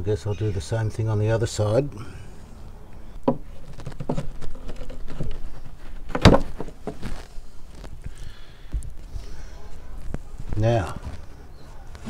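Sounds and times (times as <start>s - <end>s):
wood cracking: 3.2s - 9.1s.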